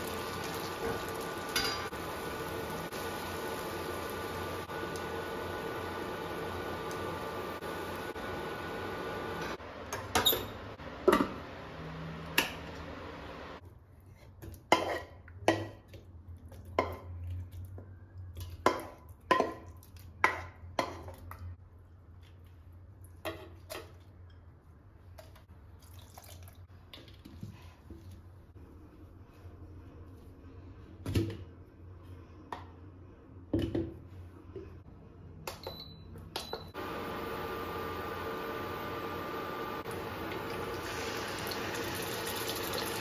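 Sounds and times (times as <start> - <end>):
wok hissing: 0.0 - 9.6, 36.8 - 43.0.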